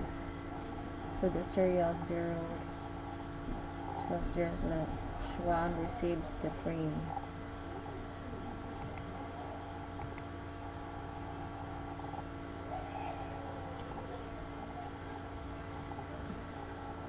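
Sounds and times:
electrical hum: 0.0 - 17.0
faint clicks: 10.0 - 10.3.

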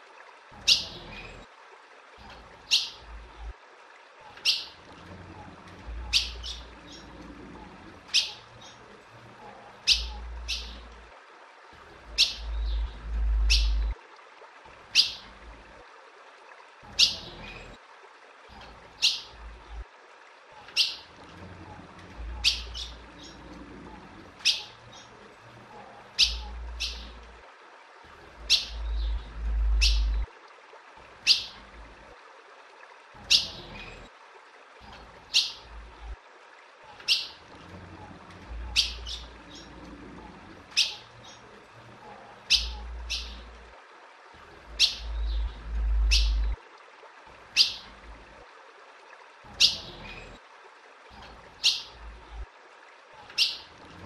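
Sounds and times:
low rumble: 12.4 - 14.0, 28.8 - 30.3, 45.1 - 46.6.

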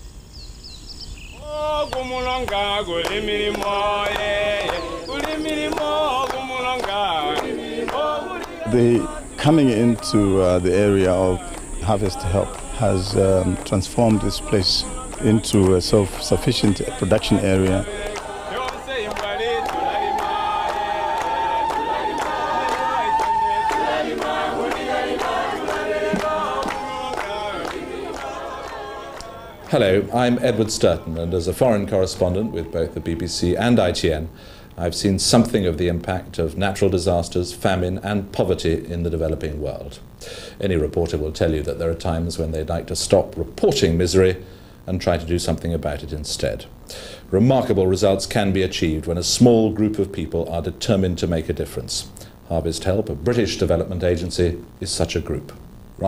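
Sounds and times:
chant-like singing: 1.3 - 34.3.

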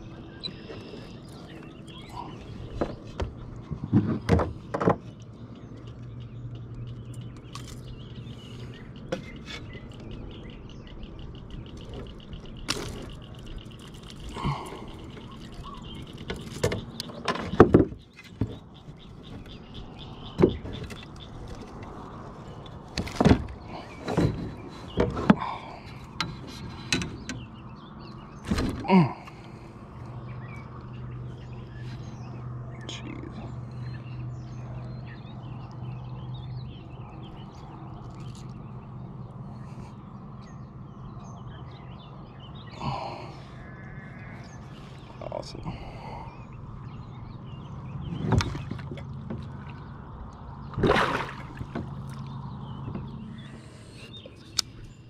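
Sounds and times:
fish bumping plastic kayak hull: 11.7 - 27.5, 47.9 - 53.6.

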